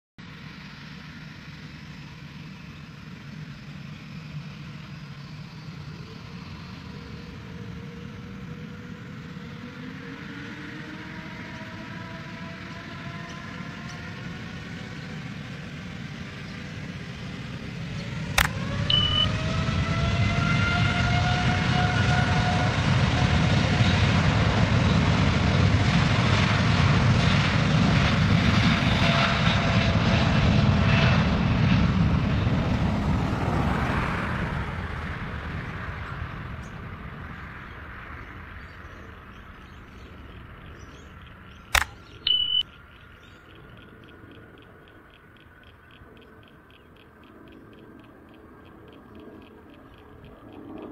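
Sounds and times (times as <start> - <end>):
jet engines spooling up: 0.2 - 50.9
sharp click: 18.4 - 19.2, 41.7 - 50.9
short high beep: 18.9 - 19.4, 42.2 - 42.6.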